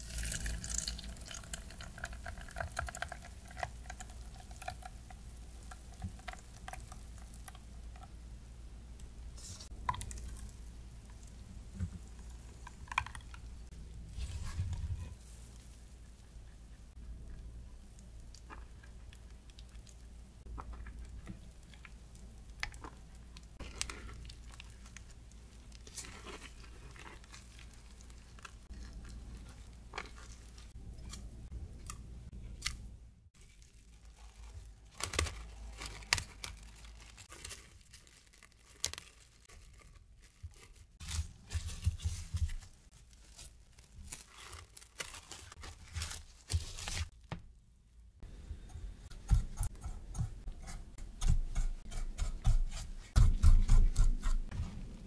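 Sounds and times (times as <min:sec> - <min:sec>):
cling wrap crinkling and tearing: 0:33.4 - 0:47.2.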